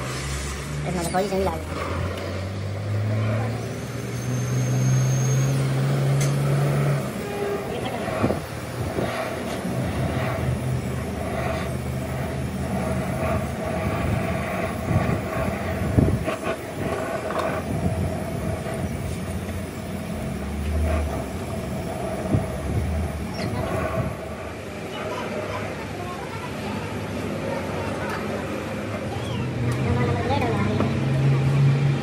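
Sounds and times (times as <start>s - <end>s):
gas torch hissing: 0.0s - 29.2s
machine hum: 5.5s - 25.5s.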